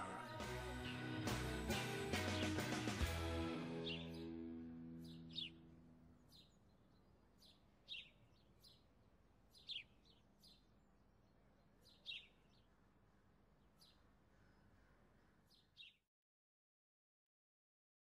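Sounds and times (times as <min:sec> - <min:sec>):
guitar chord: 0:00.0 - 0:06.0
sparrow chirping: 0:03.8 - 0:16.0.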